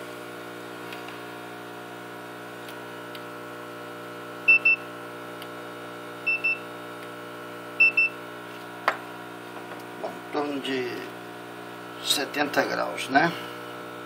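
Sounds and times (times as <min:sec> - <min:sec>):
steady electrical hum: 0:00.0 - 0:14.0
thermometer double beeps: 0:04.5 - 0:04.8, 0:06.3 - 0:06.7, 0:07.8 - 0:08.2.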